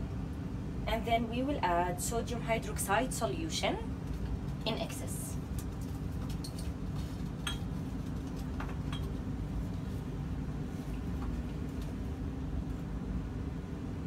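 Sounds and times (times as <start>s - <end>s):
glassware clinking: 7.4s - 7.7s.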